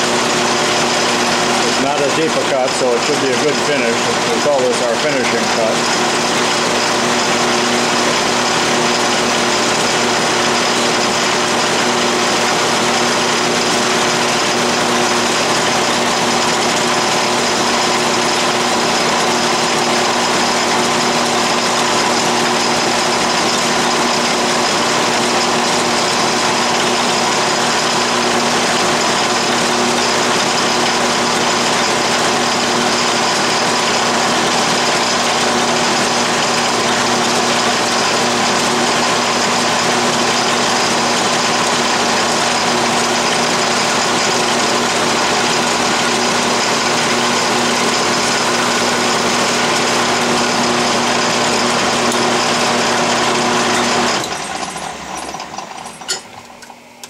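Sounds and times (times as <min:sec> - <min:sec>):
metal lathe cutting: 0:00.0 - 0:56.8.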